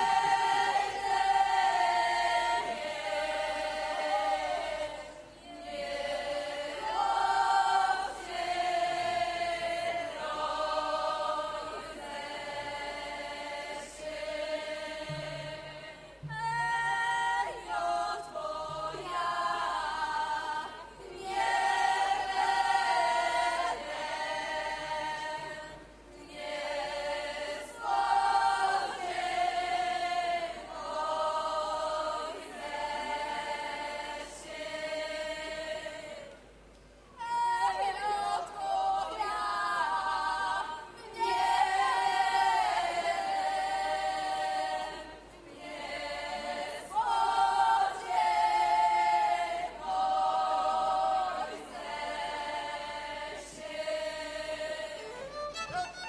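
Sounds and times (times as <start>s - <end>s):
group of folk singers singing: 0.0s - 36.5s, 37.2s - 56.0s.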